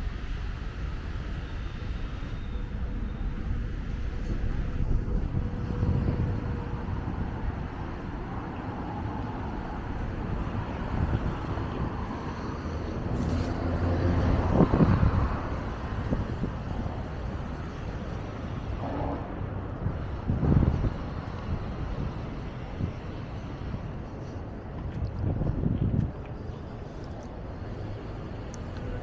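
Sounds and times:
street traffic rumble: 0.0s - 29.0s
vehicle passing: 2.8s - 24.6s.

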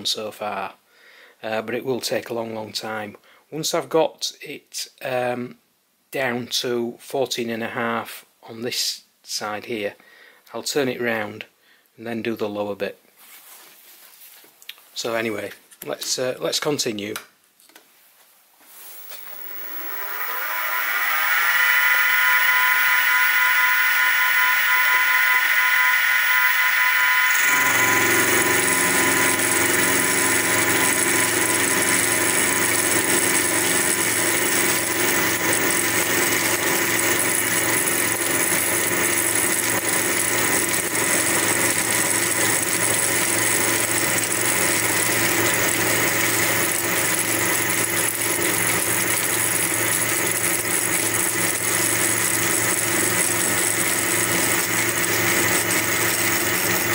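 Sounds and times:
milling machine whine: 18.9s - 56.9s
low hum: 19.0s - 35.6s.

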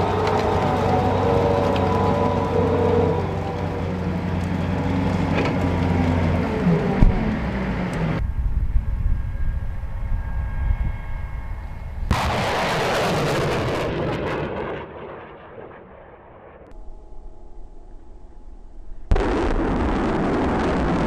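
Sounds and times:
tracked vehicle engine running: 0.0s - 12.1s
low rumble: 0.0s - 21.0s
rocket launch roar: 12.0s - 18.1s, 19.0s - 21.0s.

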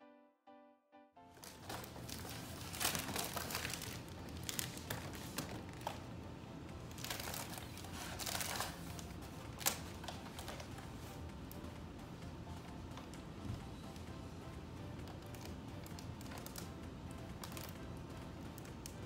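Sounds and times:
foil balloon crinkling: 1.3s - 6.1s, 6.8s - 11.6s, 15.0s - 17.8s.

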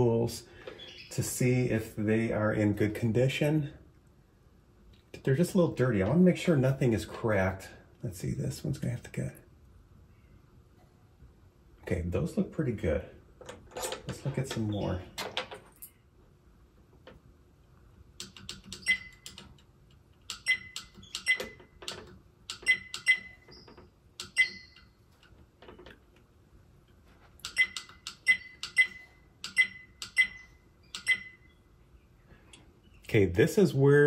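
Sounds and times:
faint steady hum: 0.0s - 34.0s
sharp ringing clicks: 18.2s - 25.4s, 27.4s - 31.6s.

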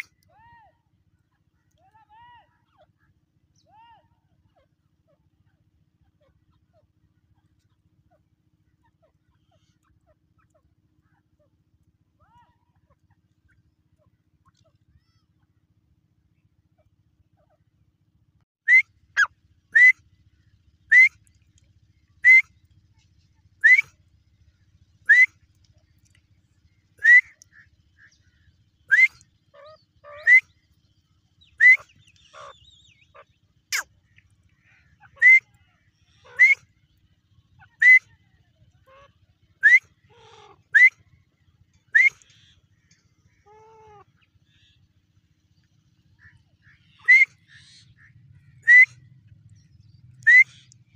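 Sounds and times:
francolin calling: 18.7s - 20.0s, 20.9s - 21.2s, 22.2s - 22.5s, 23.6s - 24.0s, 25.1s - 25.4s, 27.0s - 30.6s, 31.4s - 36.7s, 37.5s - 38.2s, 38.8s - 41.2s, 41.8s - 44.8s, 46.2s - 50.9s.

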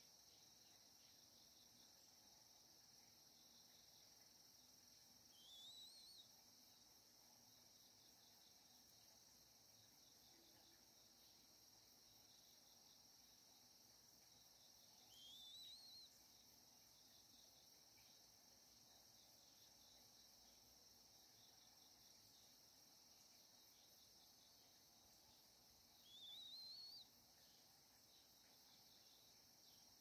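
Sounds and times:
high-pitched insect trill: 5.3s - 6.9s, 7.5s - 30.0s
wavering bird whistle: 5.4s - 6.2s, 15.1s - 16.1s, 26.0s - 27.1s.

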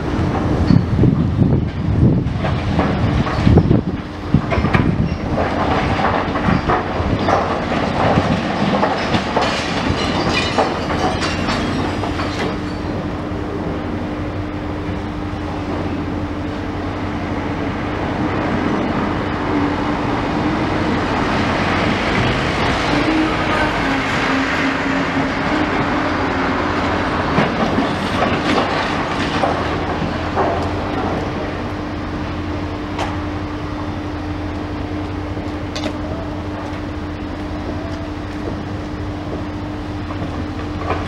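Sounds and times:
excavator engine and hydraulics droning: 0.0s - 41.0s
rubble and metal crashing: 2.1s - 13.2s, 22.2s - 31.8s.

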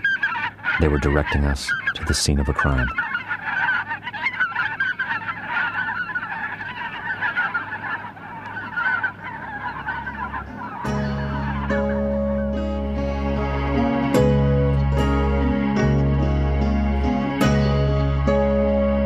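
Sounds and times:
geese honking: 0.0s - 19.0s
sustained music tones: 8.3s - 19.0s.

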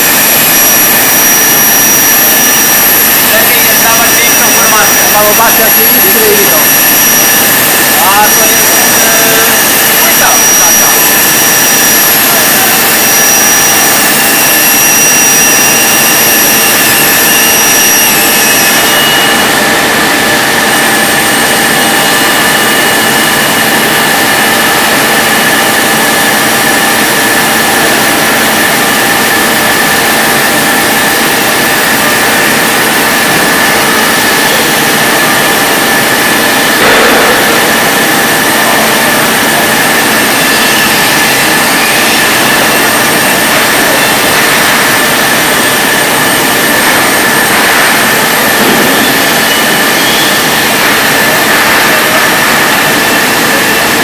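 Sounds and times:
cnc machine cutting wood: 0.0s - 54.0s.

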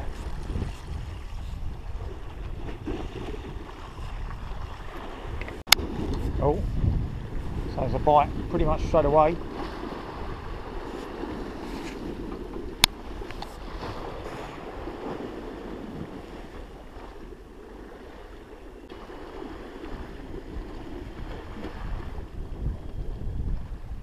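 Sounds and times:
waves washing against sea wall: 0.0s - 24.0s
wind buffeting microphone: 0.0s - 24.0s.

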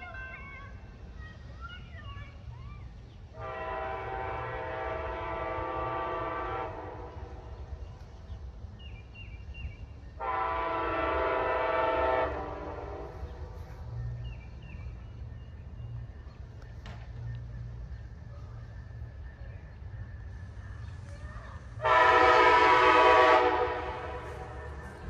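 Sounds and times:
locomotive air horn blasts: 3.4s - 7.6s, 10.2s - 13.4s, 21.8s - 24.8s.

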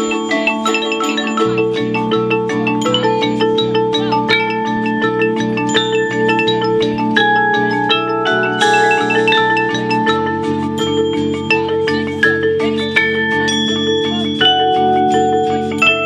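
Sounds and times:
mallet percussion run: 0.0s - 16.0s.

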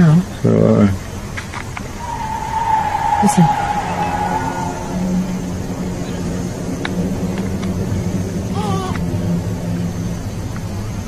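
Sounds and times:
low droning hum: 1.9s - 11.0s.

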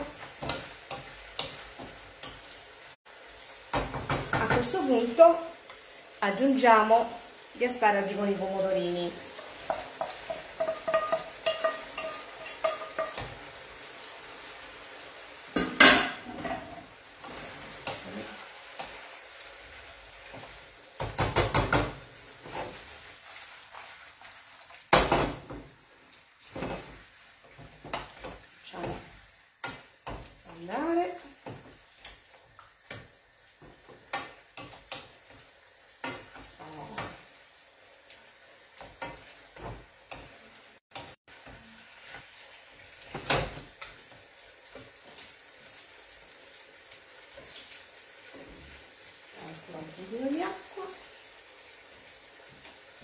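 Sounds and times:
wooden spoon scraping a pan: 0.0s - 2.7s, 8.1s - 13.9s, 15.5s - 21.2s, 21.8s - 24.9s, 26.4s - 37.4s, 38.1s - 42.5s
faint sizzle: 0.0s - 53.0s
spoon knocking against pans: 9.6s - 13.4s, 21.0s - 22.0s, 32.9s - 35.4s.

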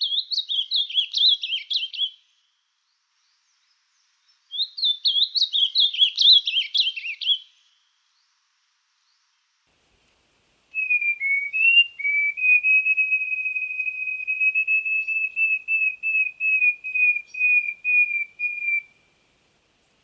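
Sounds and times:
bird whistling flute-like song: 0.0s - 2.2s, 4.5s - 7.5s, 10.7s - 19.1s.

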